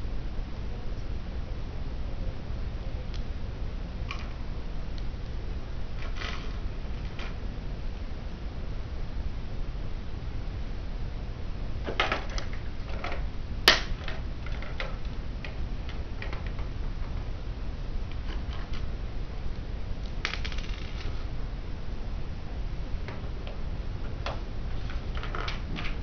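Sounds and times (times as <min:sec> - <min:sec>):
sharp plastic snap: 0:13.7 - 0:14.0.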